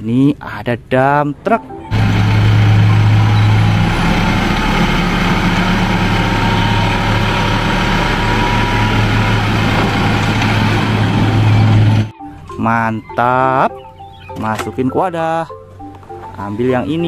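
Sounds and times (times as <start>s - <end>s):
diesel truck engine droning: 1.9s - 12.1s.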